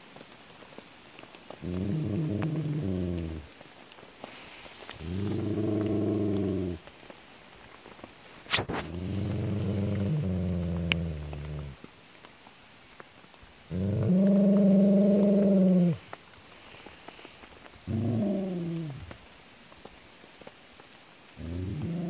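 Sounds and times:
dog growling: 1.6s - 3.5s, 5.0s - 6.8s, 8.7s - 11.8s, 13.7s - 16.0s, 17.9s - 19.1s, 21.4s - 22.0s.

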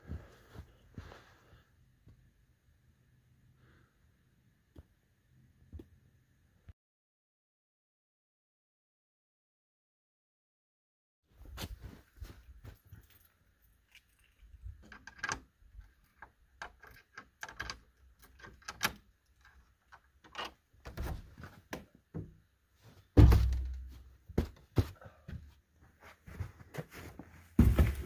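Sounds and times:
knocks and bumps: 23.0s - 25.4s, 27.6s - 28.0s
wooden door thumping open: 23.2s - 23.9s.

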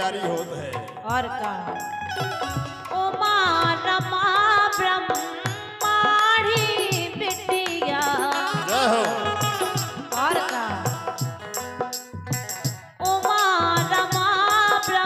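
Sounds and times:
woman singing folk song: 0.0s - 11.6s, 13.0s - 15.0s
drum beats: 0.0s - 15.0s
harmonium chords: 0.0s - 15.0s.

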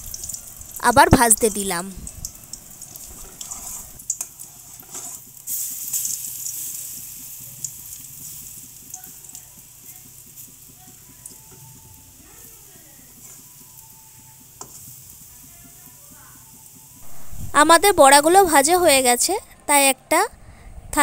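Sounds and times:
fritters sizzling in hot oil: 0.0s - 19.3s
metal spatula scraping pan: 3.2s - 5.2s.

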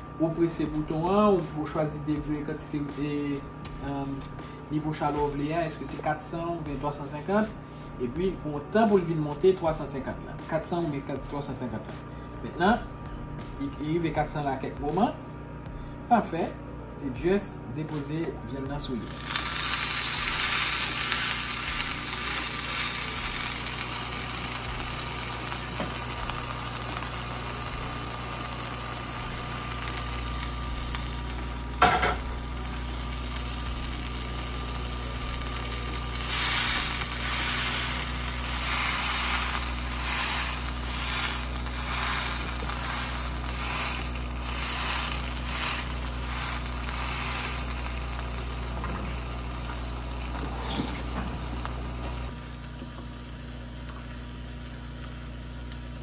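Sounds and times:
steady low hum: 0.0s - 56.0s
steak sizzling on a grill: 19.0s - 56.0s.

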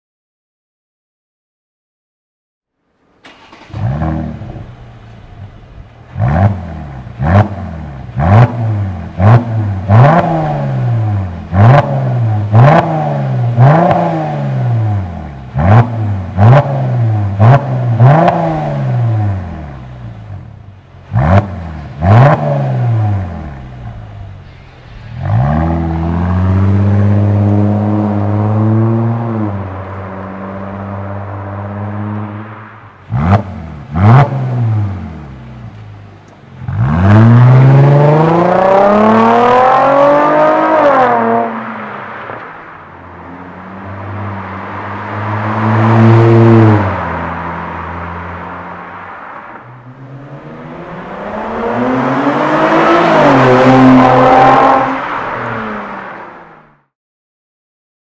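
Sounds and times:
exhaust cracking: 3.2s - 30.0s
car engine revving: 3.2s - 56.9s.

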